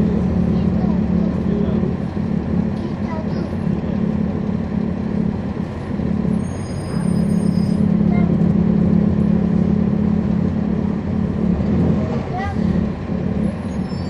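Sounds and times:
diesel bus engine running: 0.0s - 14.0s
brief high squeal: 6.4s - 8.0s, 13.6s - 14.0s.

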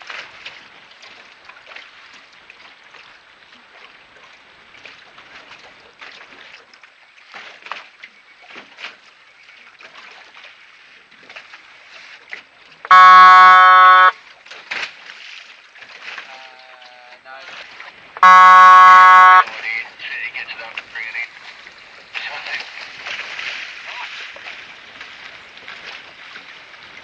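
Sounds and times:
small splashes: 0.0s - 19.8s, 20.8s - 27.0s
wind: 0.0s - 27.0s
horn blast: 12.9s - 14.2s, 18.2s - 19.5s.

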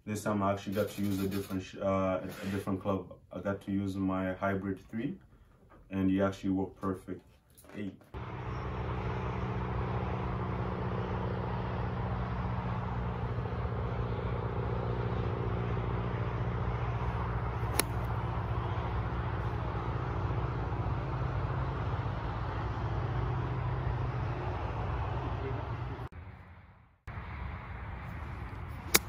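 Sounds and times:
golf ball struck click: 17.7s - 18.1s.

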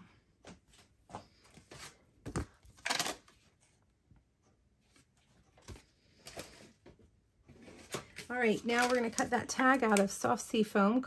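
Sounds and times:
paper rustling: 7.6s - 10.1s.

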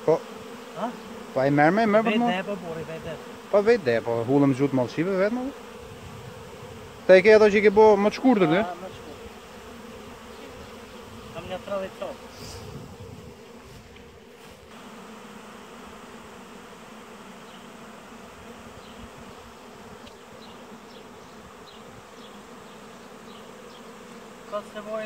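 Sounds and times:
honeybees humming: 0.0s - 25.0s
man speaking: 0.8s - 5.6s, 7.1s - 9.3s.

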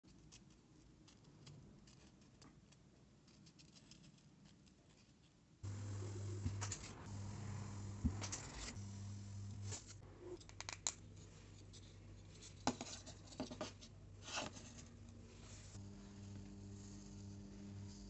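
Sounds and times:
hot wire foam cutter humming: 5.6s - 10.0s, 15.8s - 18.0s.

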